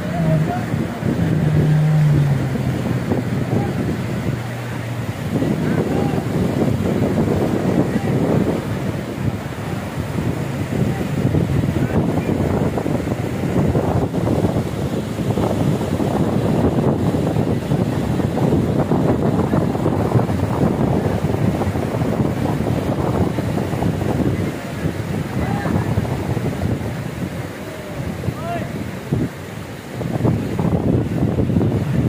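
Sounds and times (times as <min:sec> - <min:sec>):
small waves breaking: 0:00.0 - 0:32.0
wind buffeting microphone: 0:00.0 - 0:32.0.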